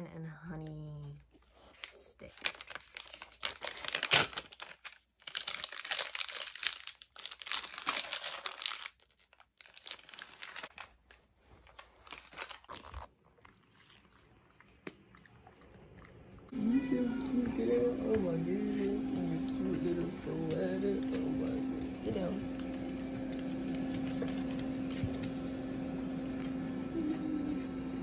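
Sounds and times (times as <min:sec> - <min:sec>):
wrapper crinkling and tearing: 0:01.6 - 0:14.4, 0:19.1 - 0:25.9.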